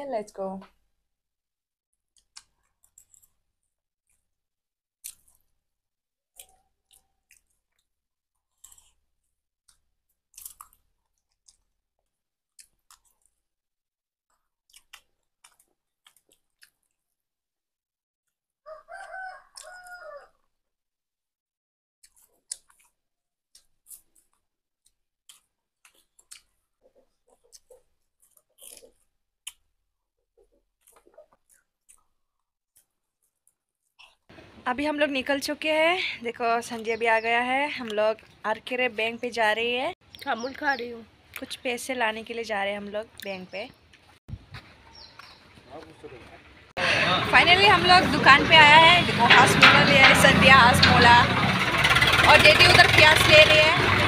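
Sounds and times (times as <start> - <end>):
person chewing: 2.1 - 4.4, 5.0 - 5.6, 6.4 - 13.5, 14.3 - 17.2, 22.0 - 34.3.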